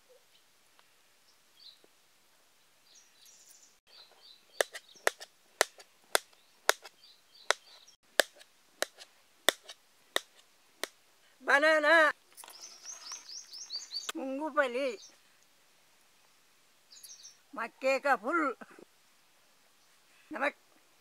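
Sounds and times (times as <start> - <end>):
faint bird chirps: 12.4 - 14.2, 16.2 - 17.6.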